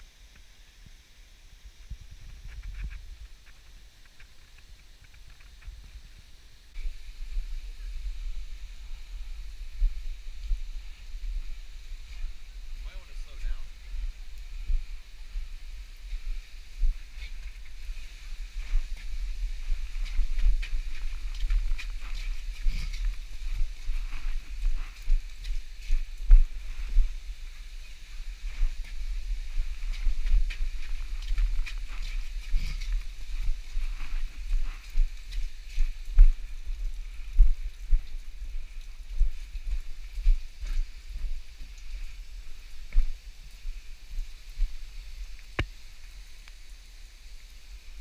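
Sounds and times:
faint hiss: 0.0 - 48.0
footsteps on icy rocky ground: 6.8 - 45.7
wind buffeting microphone: 13.5 - 45.7.

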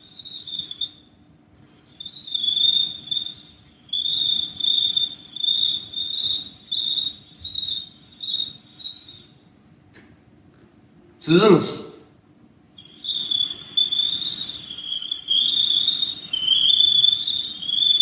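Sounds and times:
man imitating cricket chirp: 0.0 - 1.2, 1.9 - 9.4, 11.2 - 12.0, 12.8 - 18.0.

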